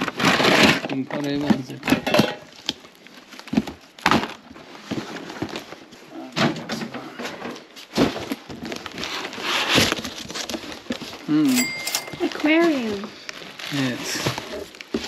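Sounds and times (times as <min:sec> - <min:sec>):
plastic wrap rustling: 0:00.0 - 0:06.2, 0:07.2 - 0:15.0
cardboard boxes knocking and thumping: 0:03.4 - 0:11.3, 0:13.8 - 0:15.0.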